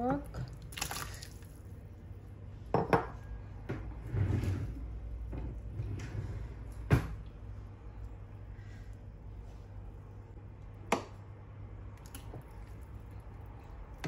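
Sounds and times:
steady low hum: 0.0 - 14.0
kitchen knocks and clunks: 2.7 - 4.0, 6.8 - 7.3.

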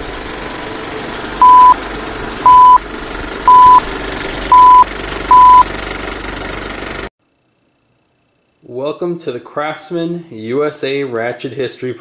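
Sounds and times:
short countdown beeps: 1.4 - 1.8, 2.5 - 2.8, 3.5 - 3.8, 4.5 - 5.6.

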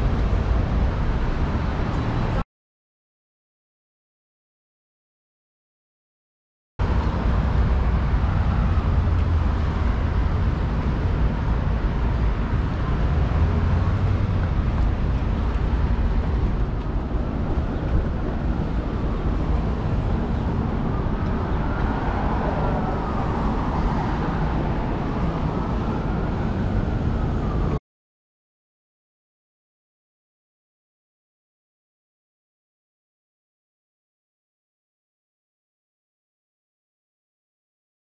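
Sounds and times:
subway train rumbling: 0.0 - 2.4, 6.8 - 27.8.

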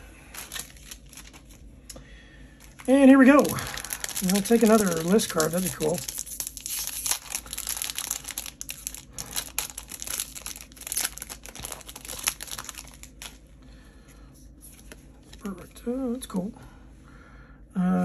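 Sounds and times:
foil wrapper crinkling and tearing: 0.3 - 1.7, 2.6 - 13.4.

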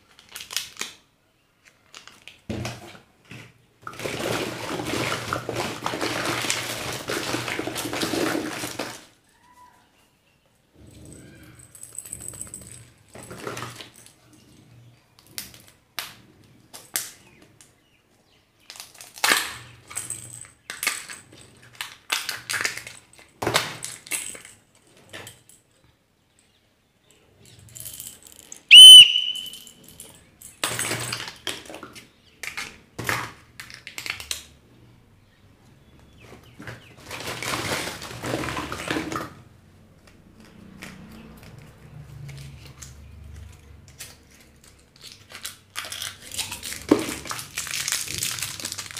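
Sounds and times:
wrappers crinkling: 0.0 - 2.5, 3.9 - 9.2, 37.0 - 38.9, 43.9 - 48.9
loud high whistle: 28.7 - 29.6.

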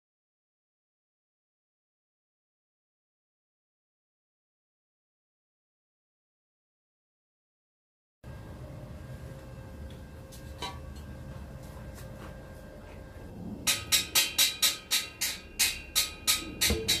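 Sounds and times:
hammer striking metal: 13.6 - 17.0.

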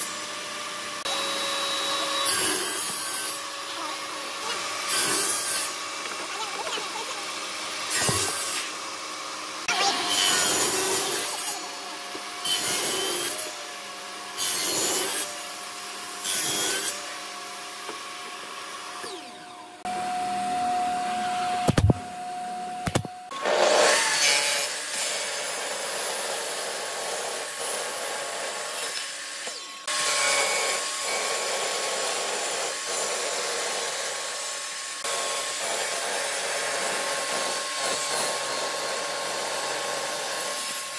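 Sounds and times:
table saw cutting wood: 0.0 - 40.9
pneumatic nail gun shots: 21.6 - 22.1.

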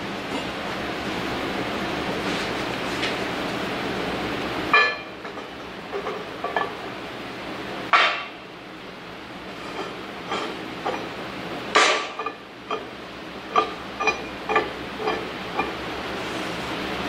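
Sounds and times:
loud ringing metal clanks: 4.7 - 6.8, 9.6 - 15.8.

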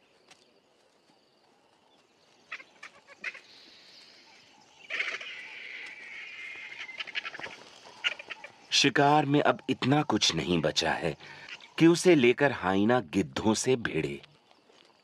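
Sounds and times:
vultures calling harshly: 2.4 - 8.8, 11.0 - 11.8.

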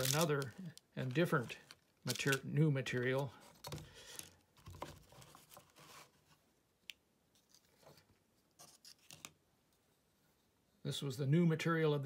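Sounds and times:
plastic parts rubbing and rustling: 0.0 - 6.3.

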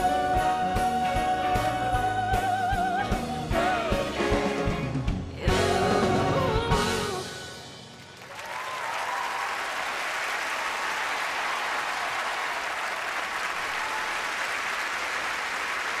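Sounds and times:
audience applauding: 8.0 - 16.0
audience cheers: 8.2 - 16.0.

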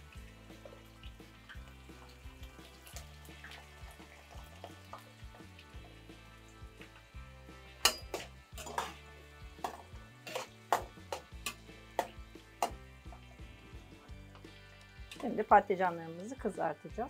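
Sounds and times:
oil sizzling: 0.0 - 17.0
metal spoon clinking on pot: 7.8 - 9.0, 9.6 - 12.8.

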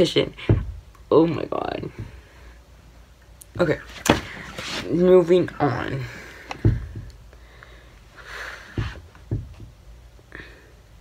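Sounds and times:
soft knocks: 6.5 - 7.2, 8.7 - 9.8.

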